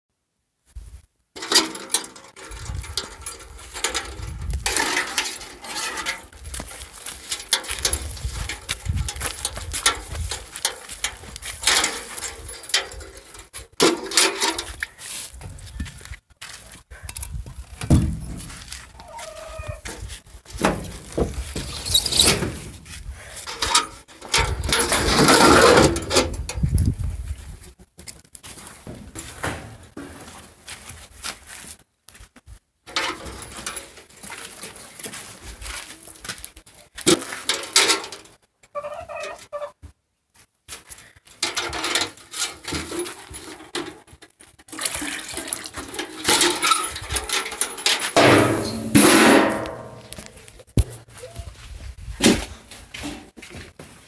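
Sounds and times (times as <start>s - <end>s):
chickens clucking: 38.7s - 39.8s.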